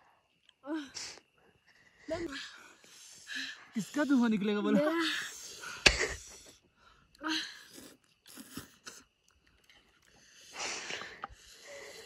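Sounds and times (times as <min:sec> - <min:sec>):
slurping and chewing noodles: 0:07.6 - 0:09.0.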